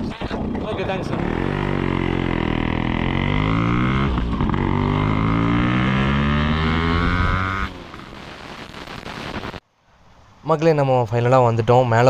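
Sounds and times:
motorcycle engine accelerating: 0.2 - 8.8.

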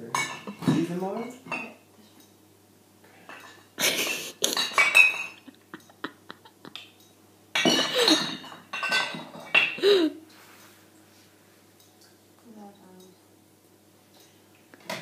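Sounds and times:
pots and pans clattering: 0.0 - 1.8, 3.2 - 5.6, 7.5 - 10.1, 14.8 - 15.0
glass bottle clinking: 4.5 - 5.4, 7.6 - 9.8.

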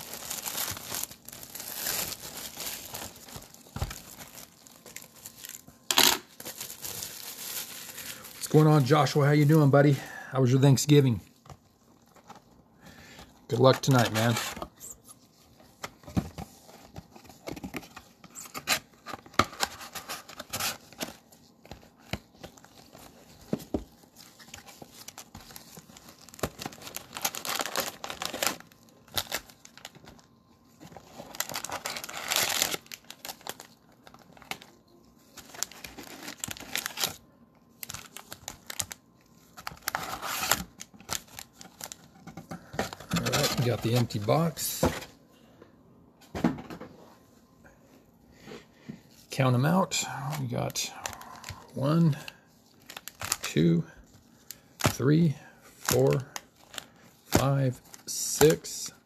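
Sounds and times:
plastic wrap tearing and crinkling: 0.0 - 9.9, 18.3 - 42.1, 42.9 - 44.6, 50.2 - 53.6.

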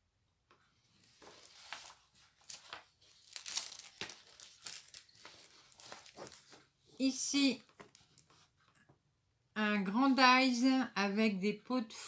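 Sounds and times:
plastic sleeves crinkling: 1.0 - 6.7.

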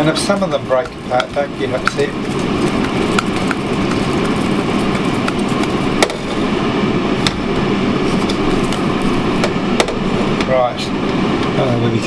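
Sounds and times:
potatoes tumbling in saucepan: 0.0 - 6.4.

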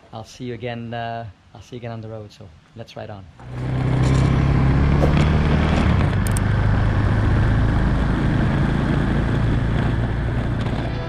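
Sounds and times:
road and wind noise: 2.5 - 11.0
motorcycle engine running: 3.4 - 11.0.

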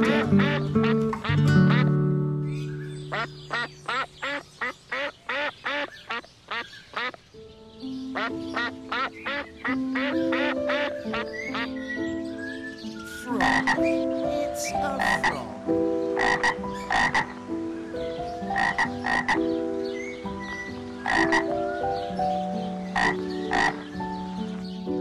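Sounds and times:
frog croaking: 13.4 - 17.4, 18.5 - 19.4, 21.0 - 21.5, 22.9 - 23.9.

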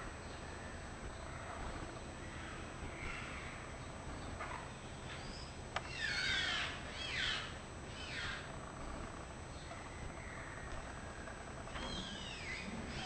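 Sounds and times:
parrots screeching: 5.1 - 8.5, 11.7 - 13.0.

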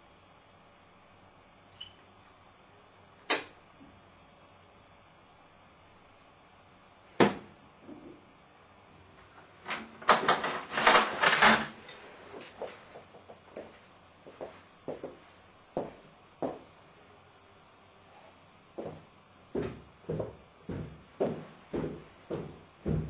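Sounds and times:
chair scraping and clattering: 9.6 - 13.7.

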